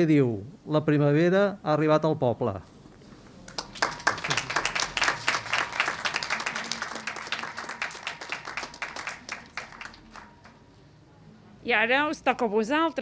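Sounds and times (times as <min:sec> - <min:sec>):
audience applauding: 0:03.3 - 0:10.6.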